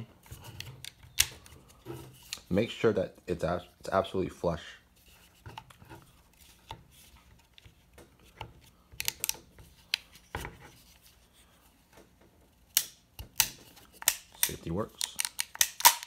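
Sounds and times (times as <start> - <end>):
clicks and rubbing of trigger housing: 12.8 - 16.0.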